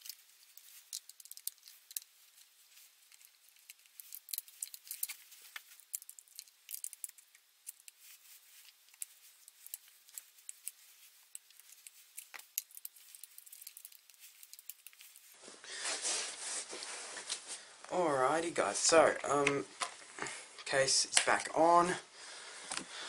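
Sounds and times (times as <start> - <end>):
rubbing rustle: 7.7 - 17.6.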